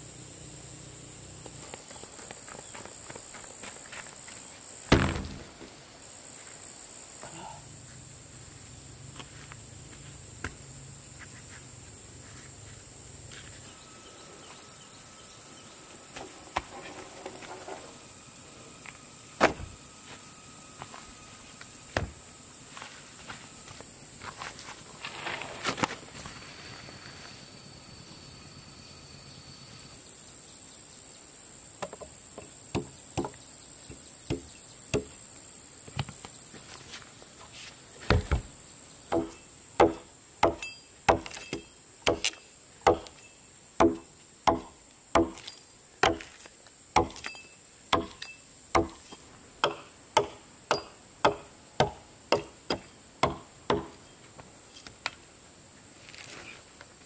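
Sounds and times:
chopping strikes: 0:04.9 - 0:05.7, 0:39.1 - 0:43.2, 0:47.0 - 0:53.9.

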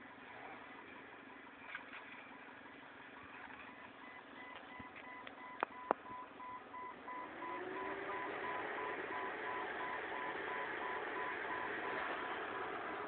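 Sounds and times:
rapid electronic beeping: 0:03.1 - 0:12.1
car engine pulling through snow: 0:06.4 - 0:13.0.

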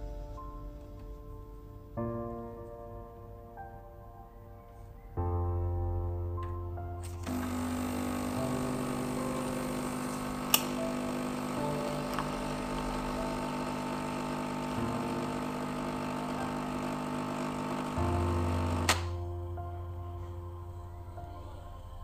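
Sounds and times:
coffee machine pump running: 0:07.1 - 0:19.1
sharp click: 0:10.5 - 0:10.8.

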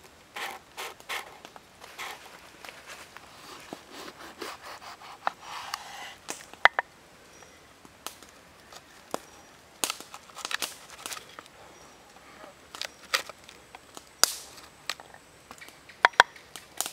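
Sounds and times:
knife sawing through pepper: 0:03.9 - 0:06.2.

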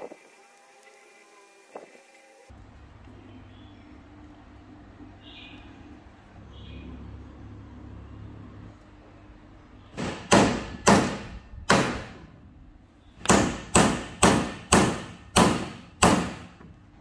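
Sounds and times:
hammer knocking on wooden block: 0:10.0 - 0:12.1, 0:13.2 - 0:16.7.

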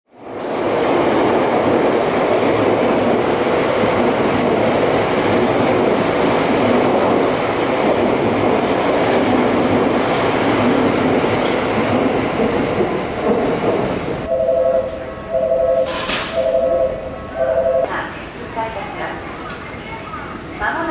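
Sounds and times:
train wheels on rails: 0:00.2 - 0:14.3
two-note tone: 0:14.3 - 0:17.9.

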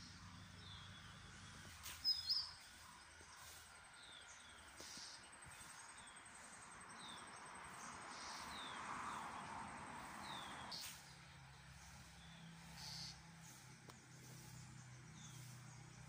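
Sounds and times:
bird chirping: 0:00.0 - 0:09.4, 0:10.2 - 0:16.0.

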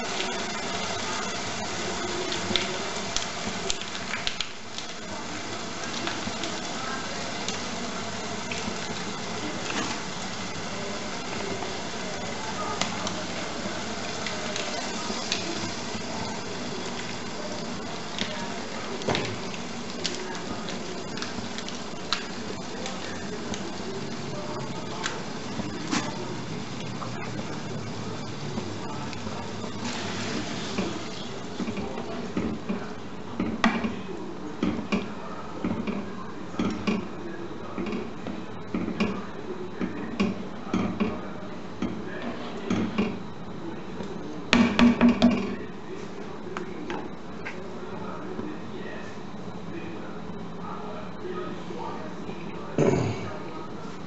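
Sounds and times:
meat sizzling in a pot: 0:00.0 - 0:35.0.

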